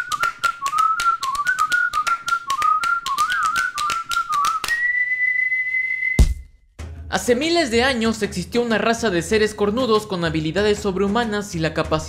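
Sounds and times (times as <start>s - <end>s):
person whistling a tune: 0.0s - 6.5s.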